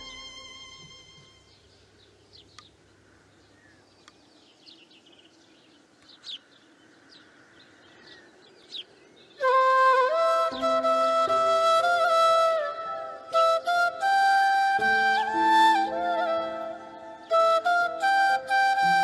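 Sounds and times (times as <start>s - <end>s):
bamboo flute melody: 0.0s - 1.5s, 9.4s - 19.0s
faint bird chirps: 0.0s - 9.6s.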